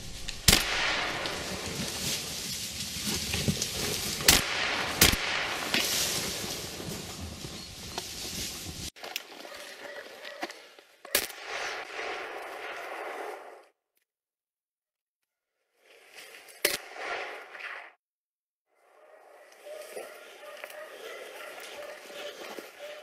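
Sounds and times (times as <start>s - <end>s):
gunshots: 0.0s - 2.0s, 4.2s - 6.5s, 11.1s - 13.6s.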